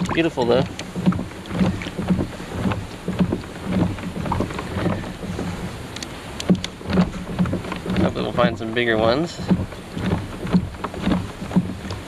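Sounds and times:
scattered knocks: 0.0s - 5.8s, 6.4s - 12.0s
small water splashes: 0.0s - 12.0s
wind rumbling on microphone: 0.0s - 12.0s.

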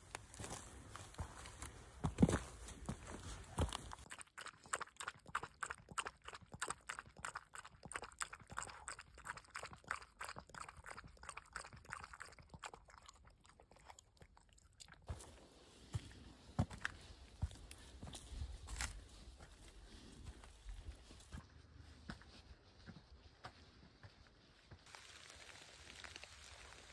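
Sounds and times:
dog lapping water: 3.6s - 15.1s.

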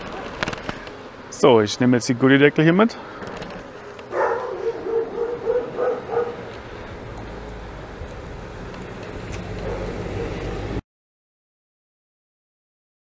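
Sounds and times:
electric scooter wind and tyres rumble: 0.0s - 10.8s
dog barking: 4.1s - 6.5s, 9.6s - 10.4s.

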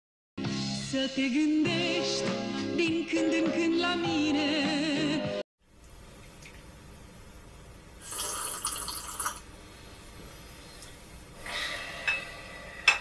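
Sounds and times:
slurping sip from cup: 8.0s - 9.4s.

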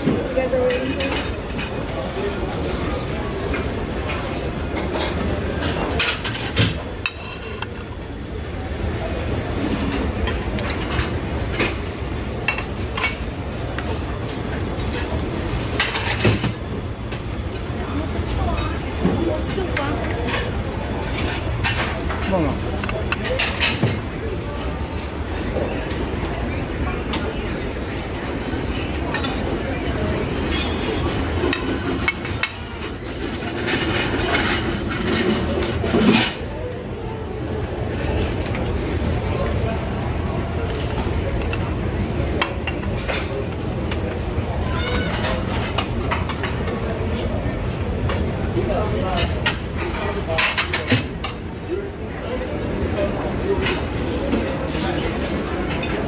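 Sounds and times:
dishes and utensils clinking: 0.0s - 8.0s, 9.1s - 26.3s, 28.7s - 36.8s, 40.3s - 47.2s, 48.0s - 51.5s
low rumble of busy room: 0.0s - 56.0s
metal tongs and pans clattering: 0.6s - 1.7s, 14.8s - 16.6s.

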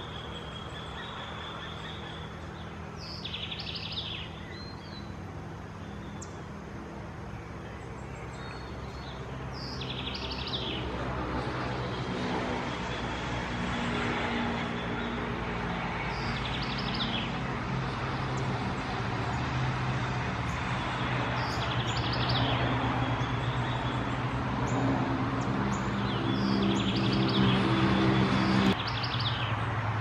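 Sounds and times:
bird chirping: 0.0s - 6.5s, 7.2s - 10.9s, 16.0s - 17.5s, 20.5s - 29.6s
vehicle engines humming: 0.0s - 30.0s.

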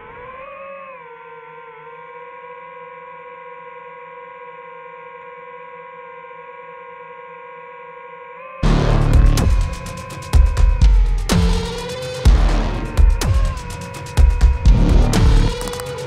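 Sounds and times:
loud electronic beat: 8.6s - 16.0s
sustained synthesizer chord: 8.6s - 16.0s.

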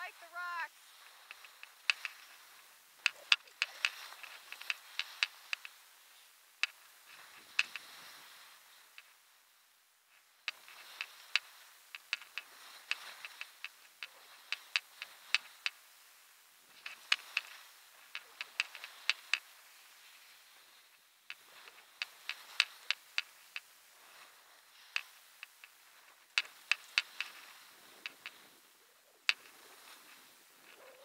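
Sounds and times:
skis hissing on snow: 29.4s - 30.7s.

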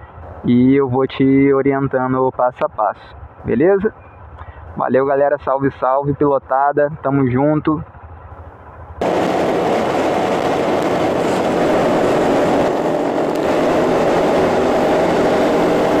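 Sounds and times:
motorcycle engine hum: 7.8s - 16.0s
wind rushing on microphone: 9.0s - 16.0s.

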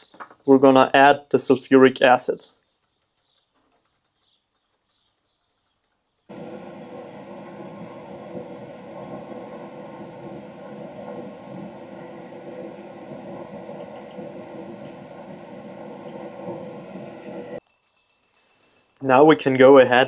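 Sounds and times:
rushing hum with fixed tones: 6.3s - 17.6s.

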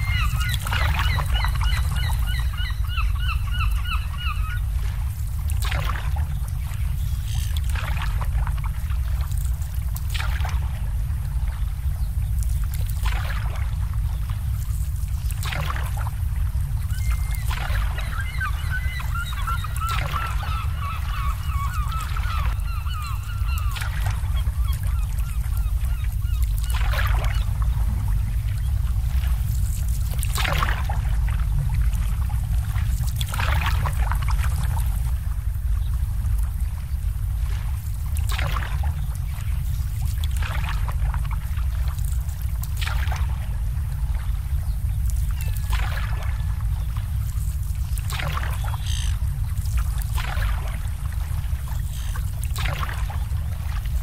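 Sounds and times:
waterfowl calling: 0.0s - 4.9s, 16.9s - 27.5s
low rumble: 0.0s - 54.0s
water lapping against boats: 0.0s - 54.0s.

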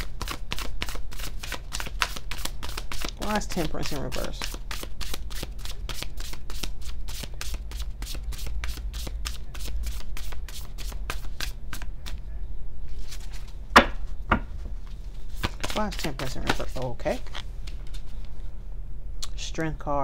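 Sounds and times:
cards being shuffled: 0.0s - 12.2s, 12.9s - 13.6s, 14.8s - 18.4s.

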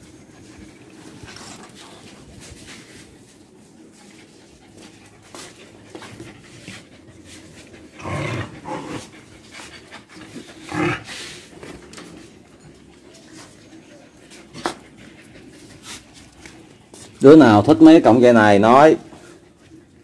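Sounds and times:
dogs panting: 0.0s - 20.0s
dog vocal sounds: 4.6s - 11.6s.

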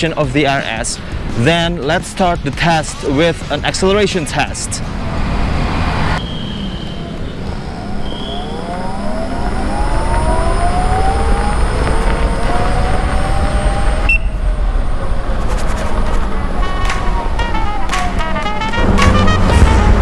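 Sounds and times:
wind rumble on microphone: 4.9s - 20.0s.

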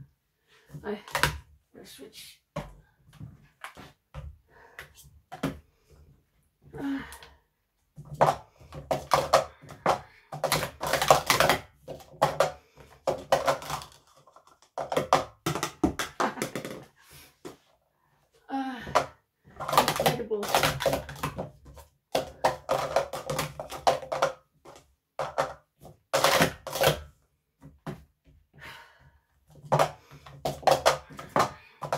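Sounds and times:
plastic cups clattering: 0.6s - 1.5s, 6.8s - 17.7s, 18.8s - 28.1s, 29.5s - 31.9s.

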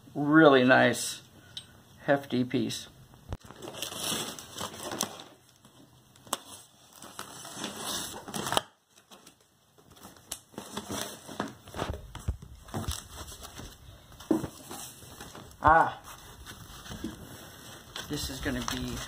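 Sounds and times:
cardboard rustling and scraping: 9.9s - 19.0s.

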